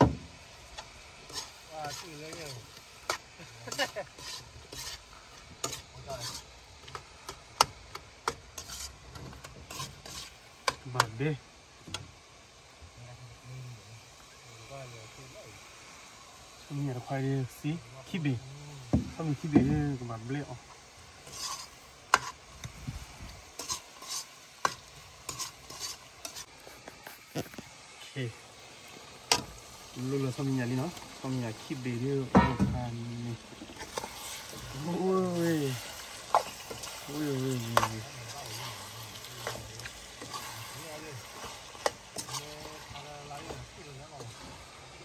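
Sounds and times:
spatula scraping frying pan: 0.7s - 11.1s, 21.1s - 22.7s, 23.4s - 27.6s, 33.6s - 44.8s.

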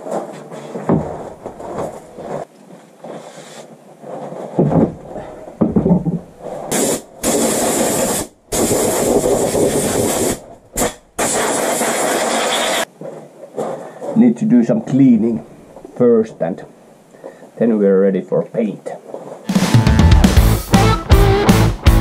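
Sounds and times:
knocks and handling clatter: 0.0s - 6.7s
pressurized spray hissing: 6.7s - 12.9s.

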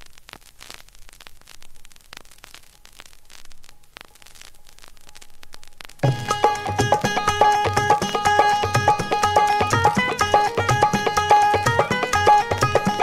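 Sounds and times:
vinyl hiss and crackles: 0.0s - 13.0s
song music: 6.0s - 13.0s.

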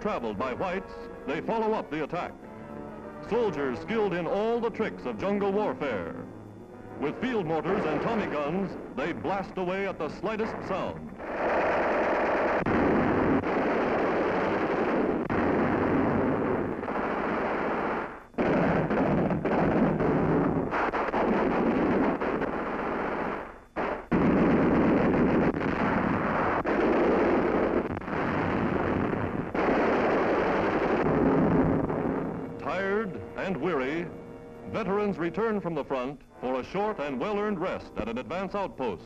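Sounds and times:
rapid automatic gunfire: 10.8s - 32.2s.

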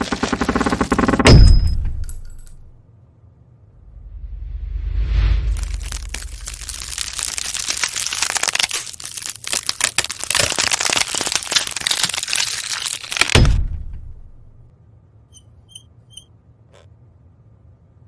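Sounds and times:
pencil crackling and splintering: 5.5s - 13.4s.

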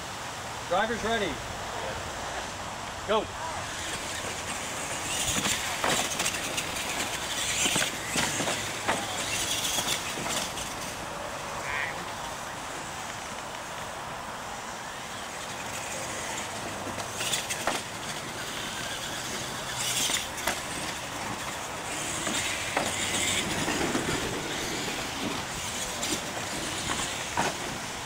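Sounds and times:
tyre noise on dirt: 3.1s - 28.0s
toy truck motors whirring: 3.6s - 11.0s, 14.9s - 28.0s.

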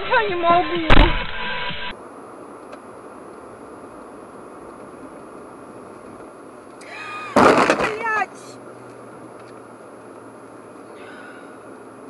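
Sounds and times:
car road and cabin noise: 0.0s - 12.0s
sudden loud burst of noise: 0.6s - 1.9s.

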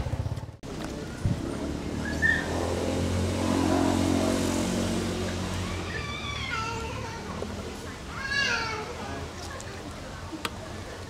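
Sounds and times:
vehicle engine humming: 0.0s - 11.0s
short high squeak: 2.0s - 2.5s.

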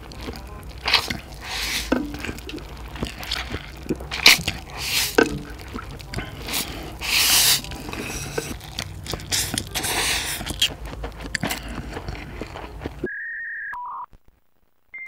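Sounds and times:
person slurping noodles: 0.0s - 13.1s
wet chewing and mouth clicks: 0.0s - 13.1s
electronic beep: 13.0s - 14.1s.

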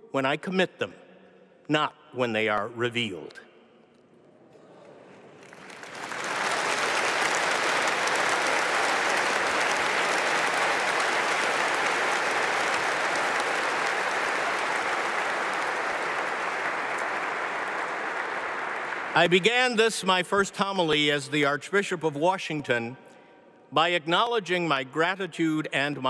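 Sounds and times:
large crowd applauding: 5.1s - 20.2s.

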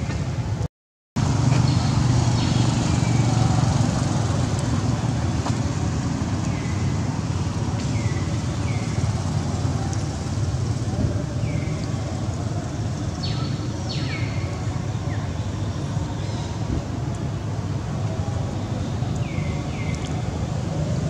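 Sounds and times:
low outdoor rumble: 0.0s - 21.0s.

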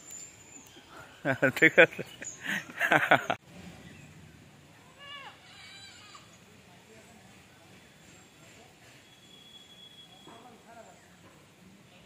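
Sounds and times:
faint animal cries: 5.0s - 6.4s.

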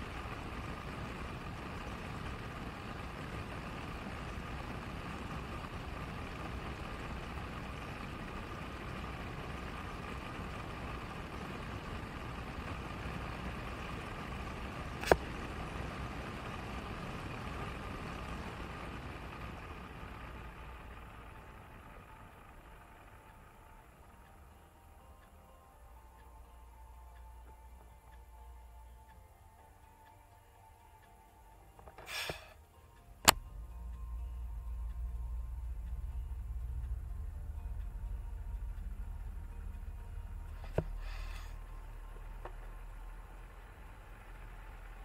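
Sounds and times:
car engine and road noise: 0.0s - 45.0s
sharp click: 33.2s - 33.6s.

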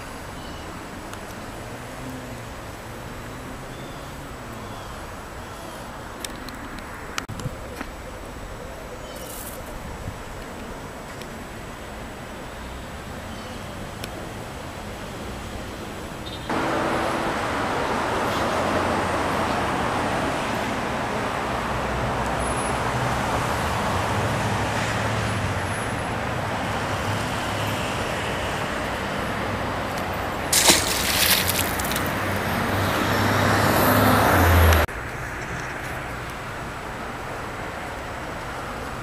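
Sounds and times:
road traffic noise: 0.0s - 39.0s
fish splashing into water: 30.5s - 32.5s.

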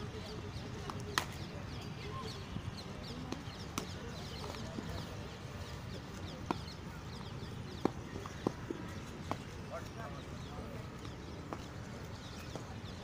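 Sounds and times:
birds chirping: 0.0s - 13.0s
murmur of distant voices: 0.0s - 13.0s
cricket bats striking balls: 3.2s - 4.0s, 6.4s - 6.7s, 7.7s - 9.6s.

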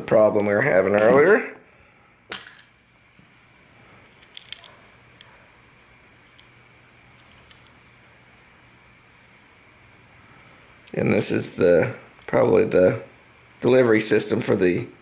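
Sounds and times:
faint steady hum: 0.0s - 15.0s
small metal parts clinking: 2.3s - 2.8s, 4.0s - 5.3s, 6.1s - 6.5s, 7.1s - 7.8s.

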